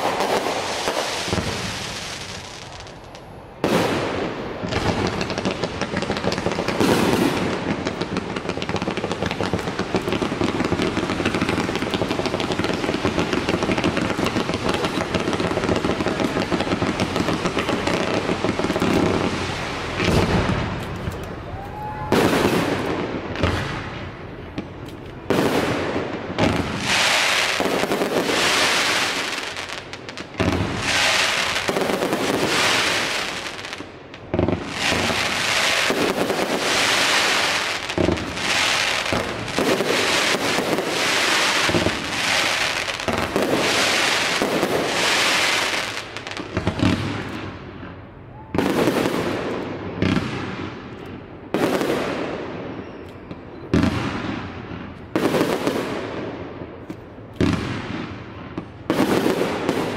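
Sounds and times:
fireworks hissing: 0.0s - 23.9s, 26.5s - 47.2s
fireworks bangs: 0.0s - 59.9s.

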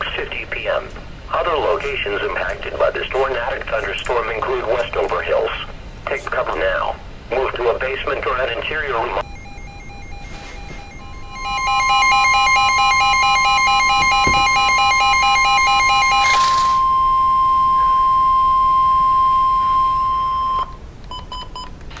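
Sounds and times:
static-like hiss: 0.0s - 9.2s
warbling pulsing alert signal: 9.2s - 20.6s
steady high beep: 9.2s - 20.8s.

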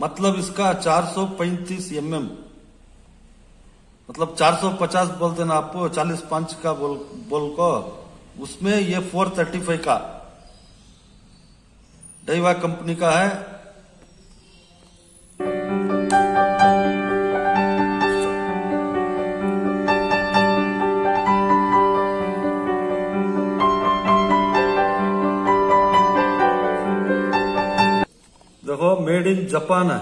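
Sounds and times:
background music melody: 15.4s - 28.1s.

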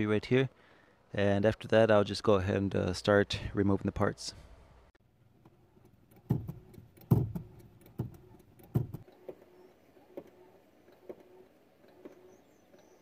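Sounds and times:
clutch pedal knocking: 6.1s - 9.4s.

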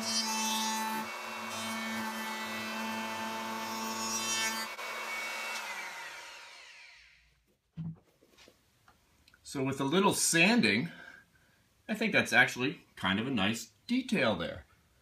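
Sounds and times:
router bit cutting wood: 0.0s - 7.2s.

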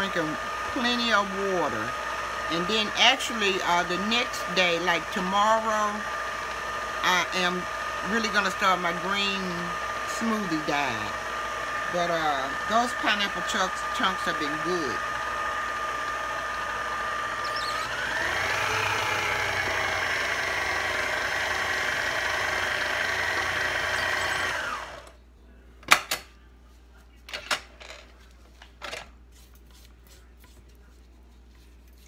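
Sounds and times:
electric mixer whining: 0.0s - 25.2s.

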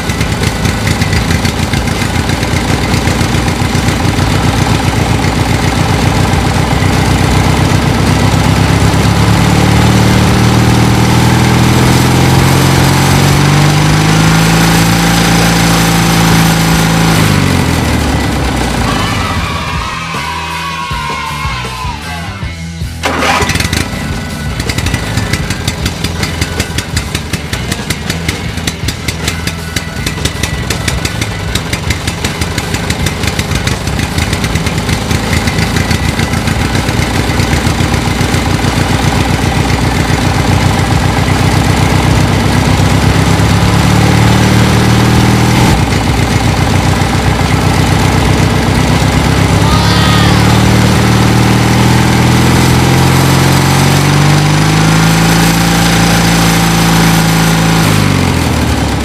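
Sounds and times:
toy tractor motor chugging: 0.0s - 11.0s, 17.1s - 19.8s, 23.0s - 44.1s, 45.6s - 51.3s.

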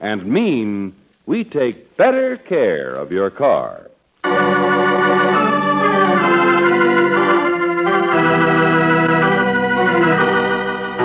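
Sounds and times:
organ playing held chords: 4.2s - 11.0s.

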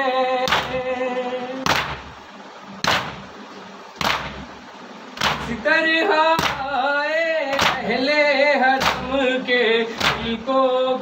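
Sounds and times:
group singing: 0.0s - 2.1s, 5.2s - 11.0s
hands striking chests: 0.5s - 0.8s, 1.7s - 2.1s, 2.8s - 3.3s, 4.0s - 4.5s, 5.2s - 5.6s, 6.4s - 6.7s, 7.6s - 7.9s, 8.8s - 9.2s, 10.0s - 10.4s.

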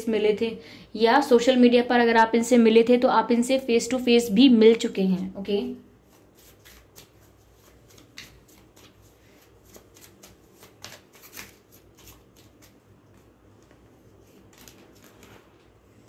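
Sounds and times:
cards being shuffled: 6.0s - 15.8s.

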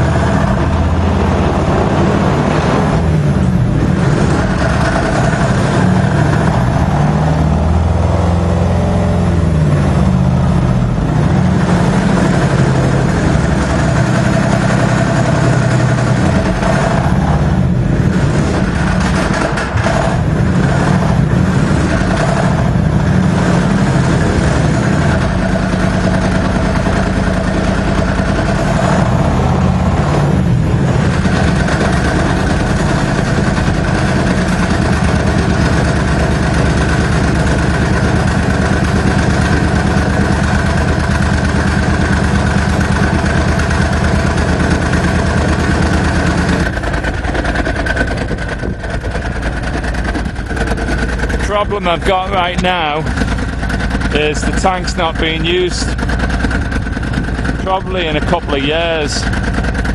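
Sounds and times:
tracked vehicle engine running: 0.0s - 59.9s.

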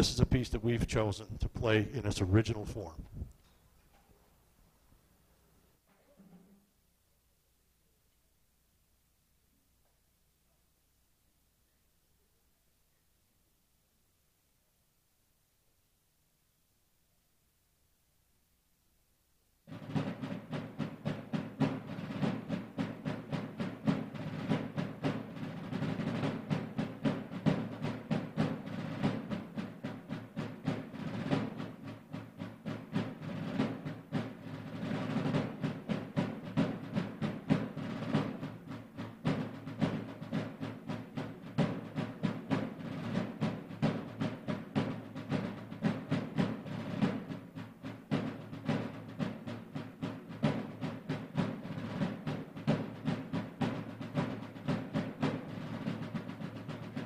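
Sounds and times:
field drums playing strokes and rolls: 0.0s - 3.0s, 19.7s - 57.0s.

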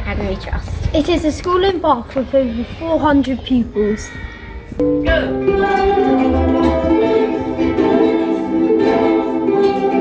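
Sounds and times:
ukuleles strumming chords: 4.8s - 10.0s.

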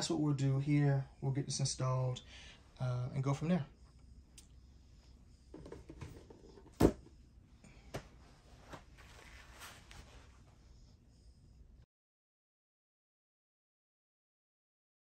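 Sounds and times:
rustling: 7.9s - 10.6s.

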